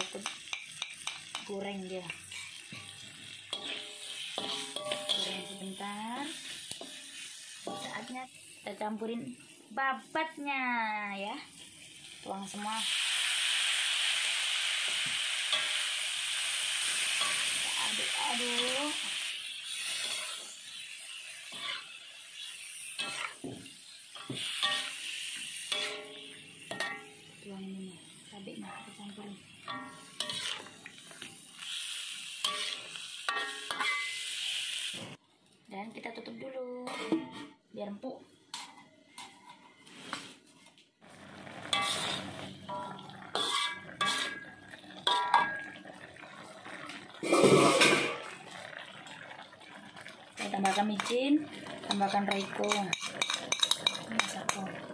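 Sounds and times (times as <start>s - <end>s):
metal spatula clanking in wok: 0.0s - 1.5s, 2.1s - 5.8s, 7.7s - 8.1s, 23.0s - 23.4s, 24.2s - 25.0s, 25.7s - 27.2s, 29.6s - 30.7s, 32.4s - 34.2s, 41.7s - 45.8s, 51.9s - 54.6s
light sizzle: 0.0s - 54.9s
metal spatula scraping wok: 0.1s - 9.2s, 13.5s - 27.4s, 28.3s - 35.1s, 36.8s - 37.6s, 38.5s - 40.5s, 41.3s - 45.8s, 47.2s - 48.2s, 50.4s - 54.9s.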